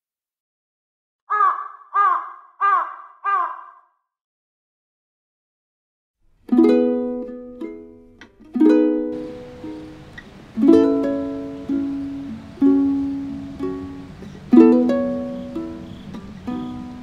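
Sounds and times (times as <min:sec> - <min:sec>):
plucked string chords: 0:06.5 - 0:17.0.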